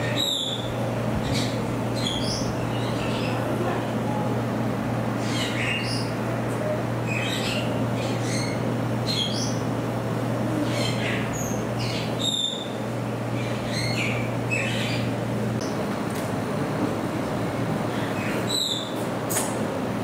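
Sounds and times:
degus chirping and squeaking: 0.0 - 3.5, 5.2 - 6.2, 7.0 - 9.7, 10.6 - 15.2, 18.1 - 19.0
steady low hum: 0.0 - 20.0.

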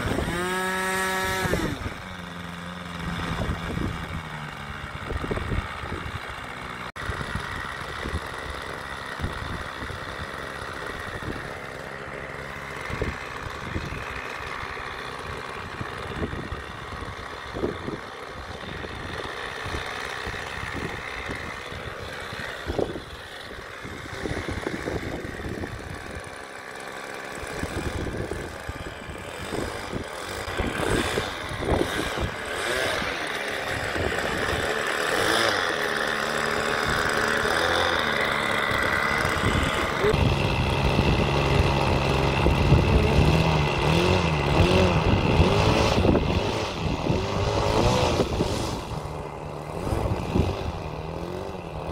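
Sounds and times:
model airplane engine idling: 0.0 - 51.9
wind buffeting microphone: 3.0 - 6.2, 27.6 - 33.1, 38.6 - 51.9.

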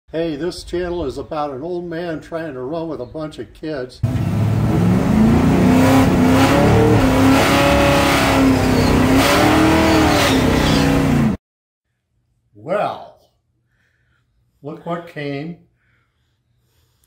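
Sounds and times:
car engine revving: 4.0 - 11.4.

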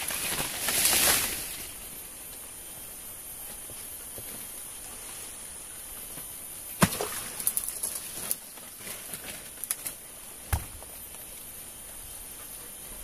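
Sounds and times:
dead branches snapping: 6.8 - 10.6
small snaps and rustles: 7.4 - 10.0.

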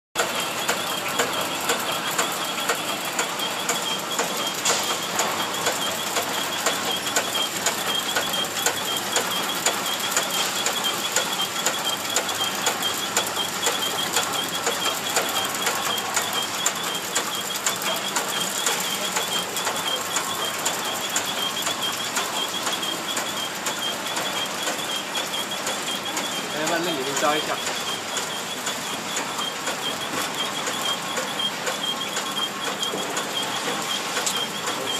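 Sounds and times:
machine high whine: 0.2 - 34.9
packing machine ticking: 0.2 - 34.9.

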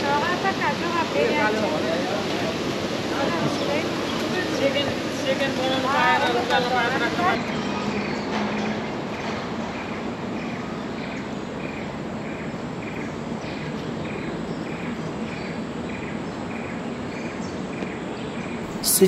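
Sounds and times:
outdoor ambience hiss: 0.0 - 19.0.

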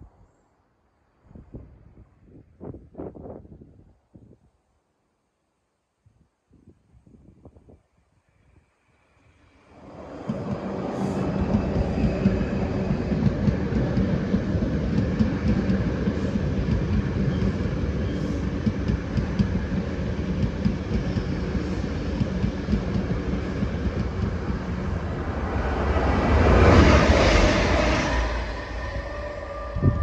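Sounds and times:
train running equipment hum: 7.0 - 30.0
wheels on rail: 8.3 - 30.0.

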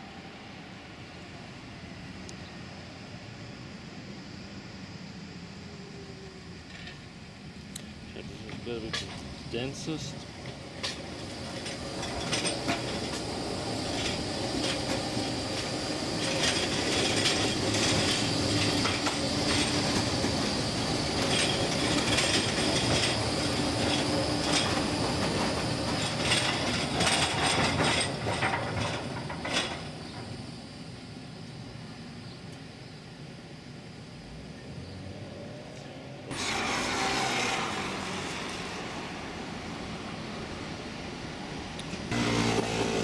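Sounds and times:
tram wheels rolling on rails: 6.5 - 43.0
wheels clicking over rail joints: 6.6 - 30.6.

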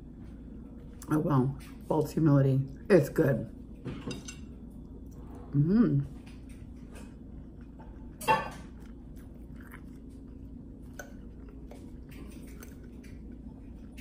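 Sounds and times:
person chewing food: 6.1 - 14.0.

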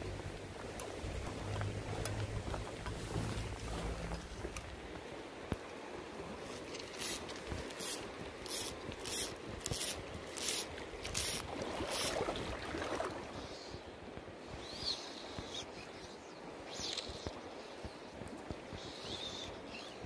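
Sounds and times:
river rushing: 0.0 - 13.4
fly line hissing through guides: 6.7 - 12.3.

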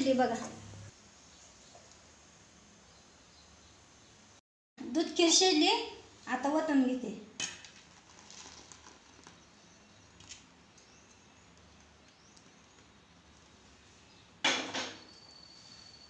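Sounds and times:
pudding being poured: 7.6 - 12.9.

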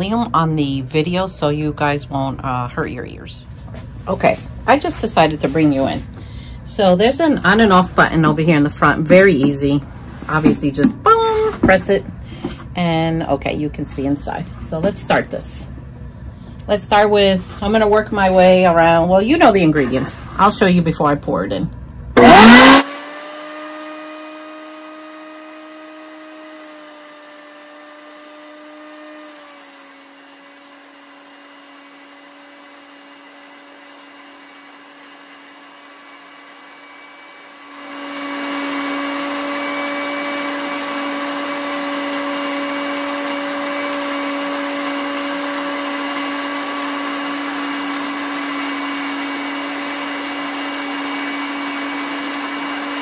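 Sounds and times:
electric grain mill grinding: 3.6 - 12.7, 22.2 - 53.0.

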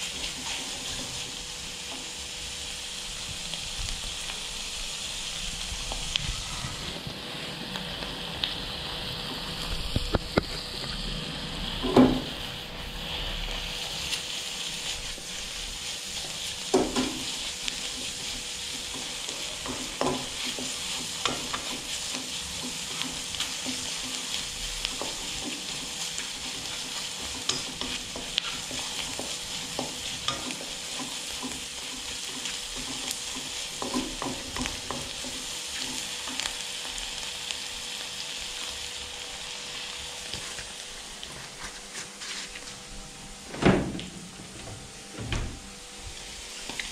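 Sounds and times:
utensil scraping wok: 0.0 - 3.5, 5.1 - 37.1
stir-fry sizzling in wok: 0.0 - 43.5, 44.1 - 46.9.

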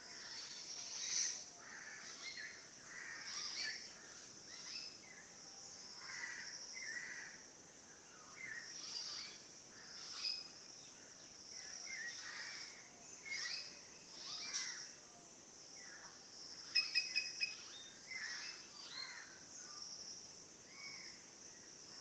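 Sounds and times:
songbirds chirping and singing: 7.9 - 21.6.

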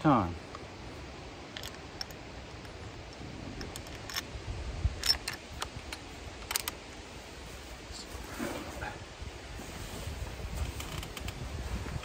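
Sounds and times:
rifle action clicking: 5.0 - 6.8.

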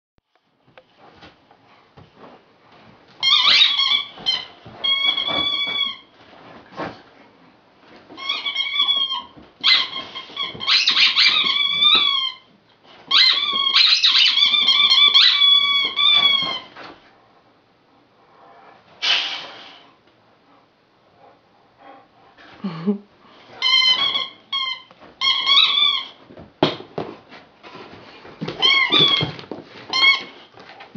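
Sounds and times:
squeaky dog toy squeaking: 3.2 - 6.1, 8.2 - 12.5, 13.1 - 16.8, 23.6 - 26.2, 28.4 - 30.4.

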